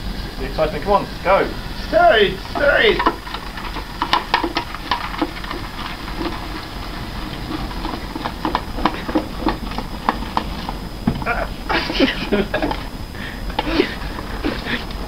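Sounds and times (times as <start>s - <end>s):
liquid nitrogen hissing and bubbling: 0.0s - 15.0s
spoon knocking against pot: 2.5s - 5.6s.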